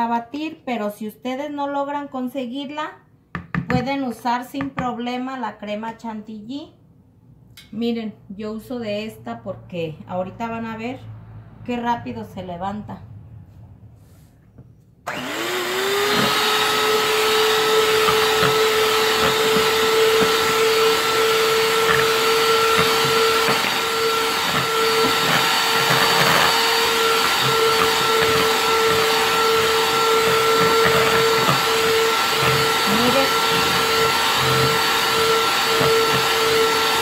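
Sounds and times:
electric hand mixer whining: 15.1s - 37.0s.

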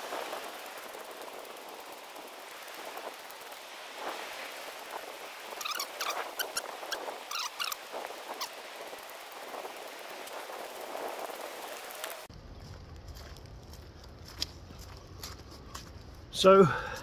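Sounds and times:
footsteps crunching on leaves: 11.0s - 16.4s.

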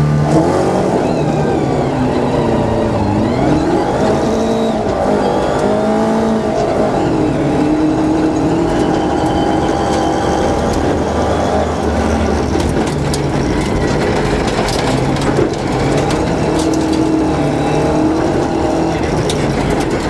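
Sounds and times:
car engine revving: 0.0s - 20.0s
gravel clattering against car: 7.6s - 20.0s.

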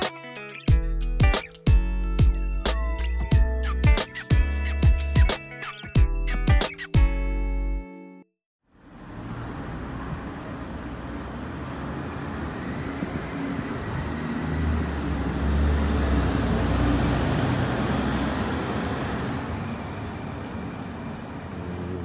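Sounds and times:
vehicle passing with low rumble: 8.7s - 22.0s.

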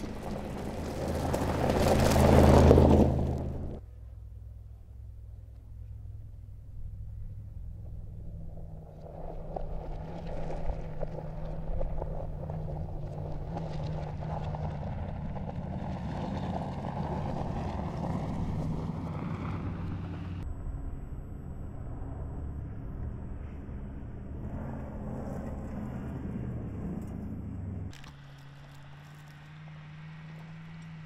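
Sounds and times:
tyres crackling on gravel: 0.0s - 3.8s, 8.2s - 20.4s, 24.6s - 31.0s
car engine running: 0.0s - 31.0s.

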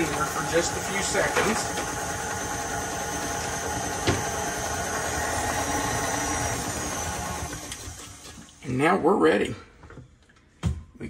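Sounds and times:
stand mixer running: 0.0s - 8.6s.

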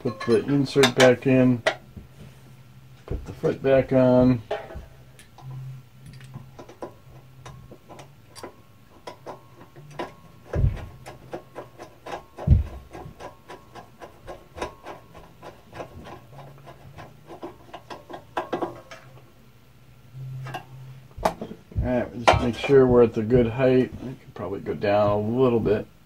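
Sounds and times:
metal parts clicking and scraping: 3.3s - 19.2s.

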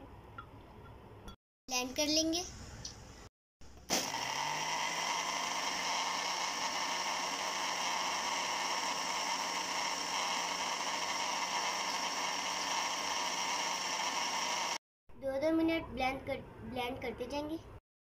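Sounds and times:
electric blender whirring: 3.9s - 14.8s.

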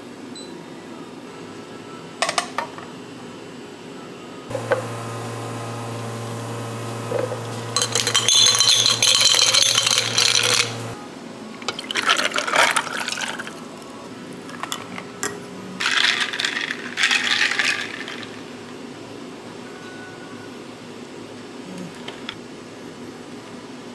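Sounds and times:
machine humming: 4.5s - 11.0s
water pouring into container: 11.7s - 13.6s.

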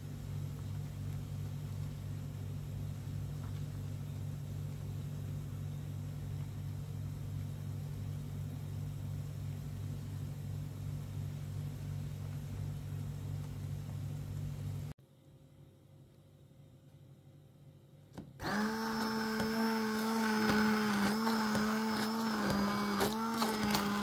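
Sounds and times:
kitchen appliance humming: 18.1s - 24.0s.

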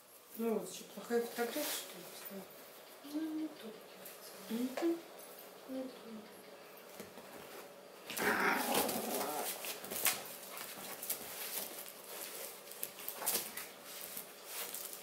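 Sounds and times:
paws and toy rustling on sofa: 7.0s - 15.0s
puppy vocalizing: 8.2s - 9.6s.

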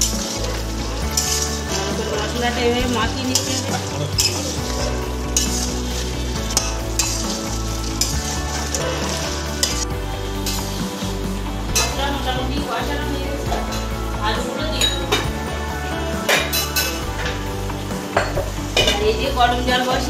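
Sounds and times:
metal spatula scraping a pan: 0.0s - 12.3s
food sizzling: 0.0s - 20.0s.

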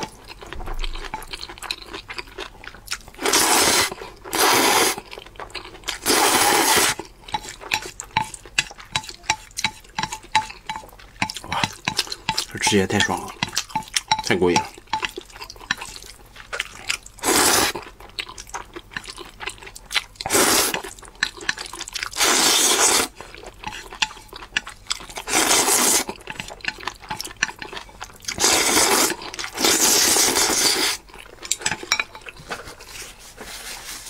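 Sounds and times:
person chewing: 0.0s - 32.5s
person slurping noodles: 3.2s - 5.0s, 6.0s - 7.0s, 17.2s - 17.8s, 20.3s - 20.8s, 22.1s - 23.2s, 25.2s - 26.2s, 28.4s - 31.0s.

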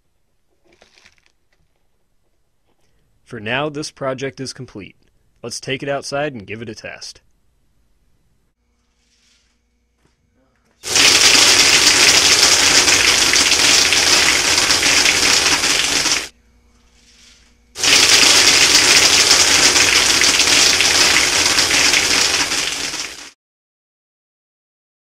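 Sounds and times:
pellets hitting target: 10.8s - 16.3s, 17.8s - 23.3s
compressed air hissing: 17.0s - 23.3s.

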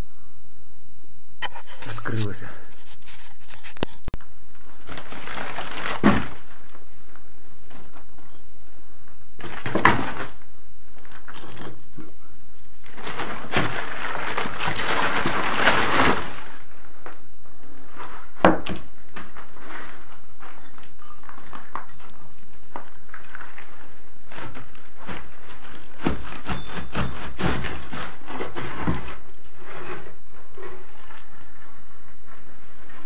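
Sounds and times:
rubble scraping rustle: 1.4s - 7.0s, 12.8s - 17.0s, 23.0s - 31.4s.

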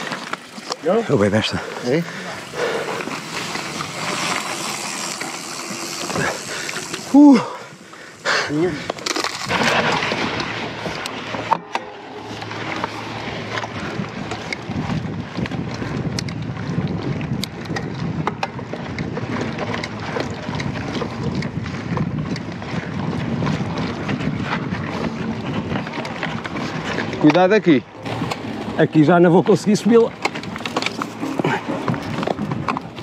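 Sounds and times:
bike clicks and rattles: 0.0s - 33.0s
tyres rumbling on dirt: 0.0s - 33.0s
wind buffeting microphone: 12.4s - 33.0s.

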